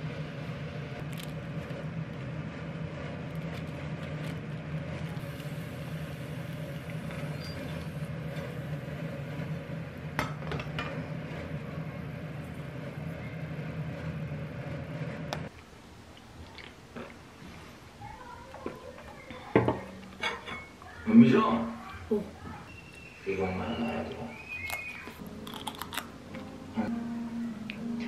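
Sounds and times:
low kitchen hum: 0.0s - 28.0s
spatula and dishes clinking on plate: 19.6s - 20.7s.

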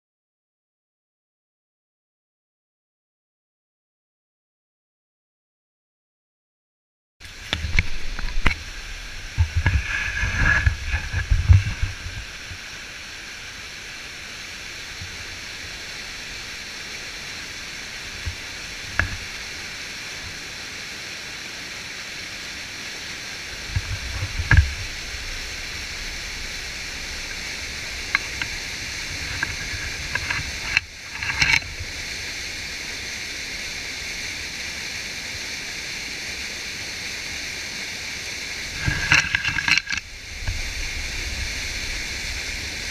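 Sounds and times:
rapids rushing: 7.2s - 42.9s.

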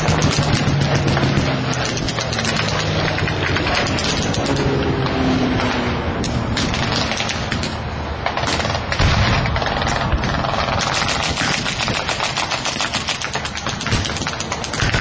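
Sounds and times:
rattle of sharp cracks: 0.0s - 4.7s, 5.6s - 15.0s.

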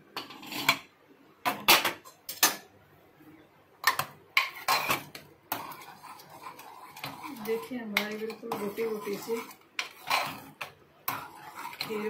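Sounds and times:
spoon scraping metal pot: 0.2s - 0.9s, 3.8s - 12.0s.

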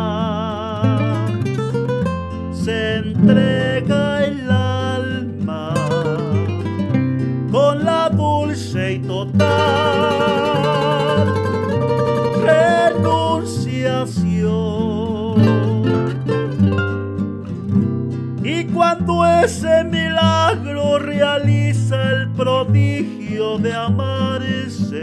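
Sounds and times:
nylon-string guitar bass and chords: 0.0s - 25.0s
requinto guitar melody: 0.0s - 25.0s.

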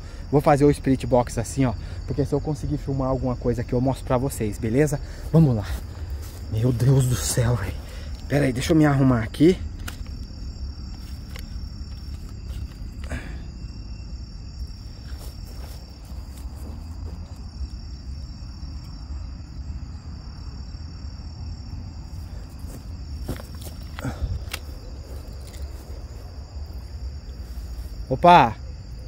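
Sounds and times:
crickets trilling: 0.0s - 29.0s
handling rustle: 9.6s - 13.3s, 14.6s - 17.8s, 22.1s - 28.0s.

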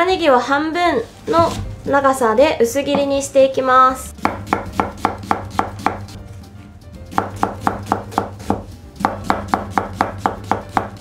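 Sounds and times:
knife slicing onion on board: 4.2s - 6.2s, 7.1s - 11.0s.

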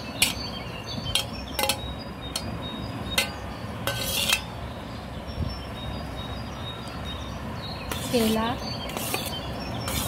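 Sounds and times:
metal plate clinking on bowl: 1.1s - 1.8s, 3.2s - 4.5s
plate scraping bowl rim: 3.9s - 4.5s, 8.9s - 10.0s.

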